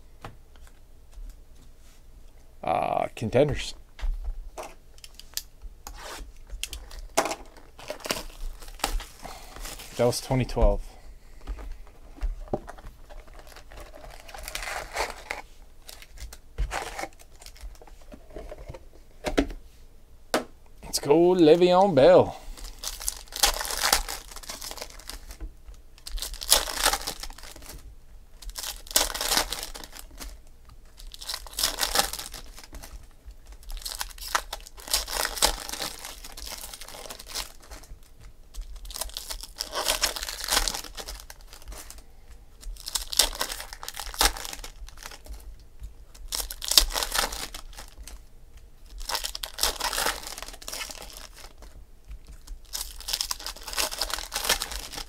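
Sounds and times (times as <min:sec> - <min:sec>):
plastic wrappers crinkling: 0:04.7 - 0:10.8, 0:11.4 - 0:18.6, 0:20.9 - 0:55.0.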